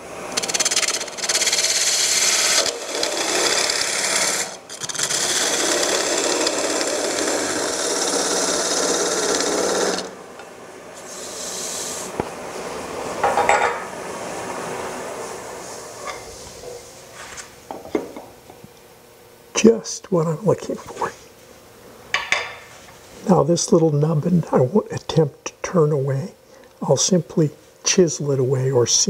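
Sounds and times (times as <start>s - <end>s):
lathe tool shaving wood: 0.0s - 10.2s, 11.0s - 12.2s.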